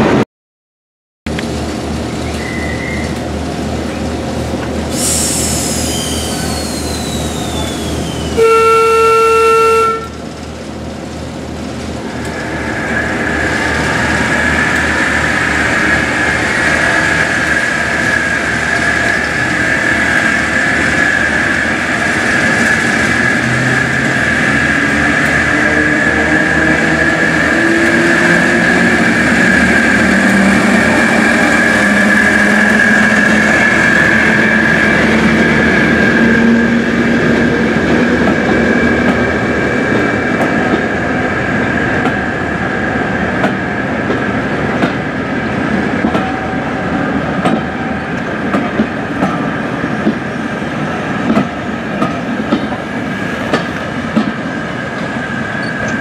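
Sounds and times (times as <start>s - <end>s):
diesel locomotive engine running: 1.3s - 56.0s
locomotive horn blast: 8.4s - 10.2s.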